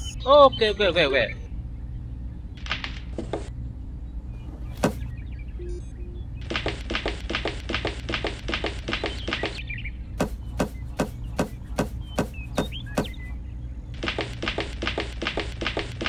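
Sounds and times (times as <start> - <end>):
steady low hum: 1.4 - 16.0
quick tapping: 4.8 - 5.1, 10.2 - 13.3.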